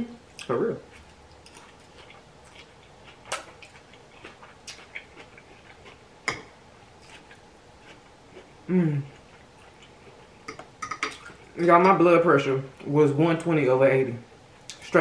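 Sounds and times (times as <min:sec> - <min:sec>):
chewing and mouth sounds: 0:00.3 - 0:11.5
person humming: 0:08.7 - 0:09.1.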